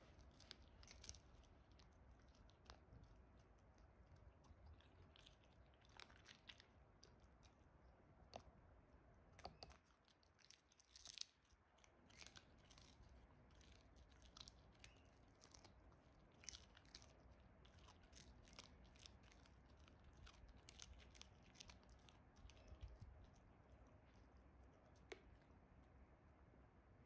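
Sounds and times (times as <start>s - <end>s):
dog chewing a treat: 9.4s - 23.5s.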